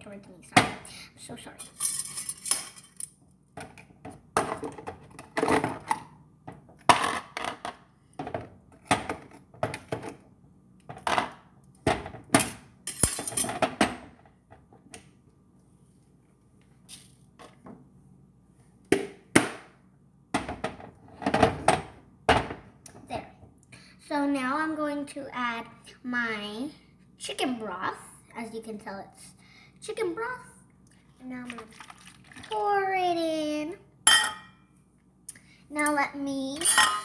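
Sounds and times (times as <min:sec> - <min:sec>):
crockpot and lid clinking: 0:34.1 - 0:34.6, 0:36.6 - 0:37.0.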